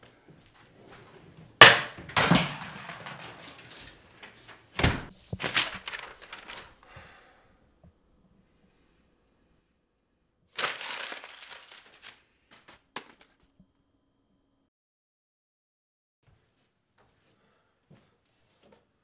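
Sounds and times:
rustling: 0:00.6 - 0:06.8
sharp knocks: 0:01.6 - 0:03.5
door slamming shut: 0:01.6 - 0:03.9, 0:04.8 - 0:05.2.

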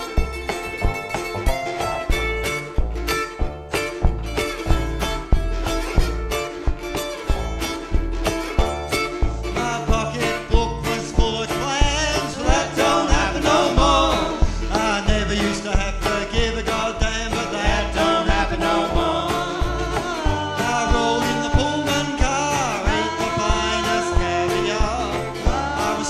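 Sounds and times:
acoustic guitar strumming: 0:00.0 - 0:26.0
banjo strumming: 0:00.0 - 0:26.0
upright bass: 0:00.0 - 0:26.0
person singing: 0:09.4 - 0:26.0.

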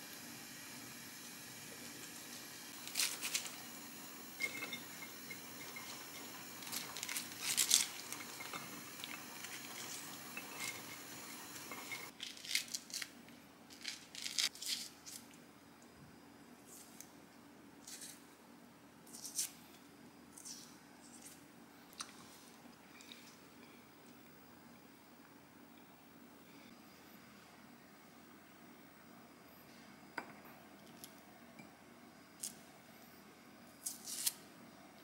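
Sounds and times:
shredded cabbage rustling: 0:02.7 - 0:03.6, 0:06.0 - 0:11.0.

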